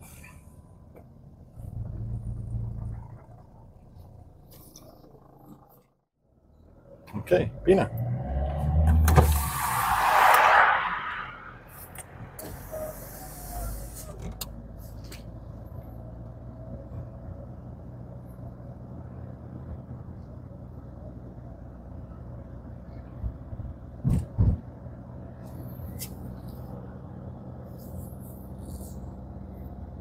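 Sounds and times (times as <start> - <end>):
car engine and tyre rumble: 0.0 - 30.0.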